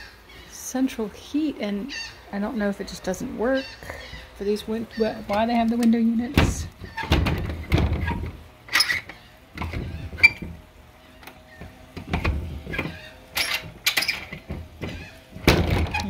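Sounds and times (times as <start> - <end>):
door scraping: 5.0 - 16.0.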